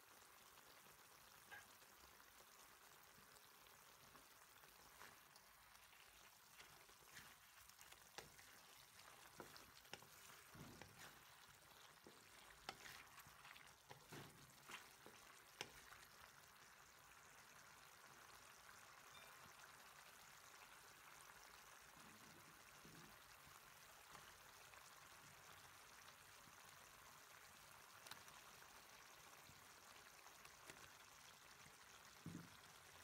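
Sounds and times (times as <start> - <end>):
meat sizzling in a pan: 0.0 - 33.0
wooden spatula scraping pan: 6.5 - 16.0.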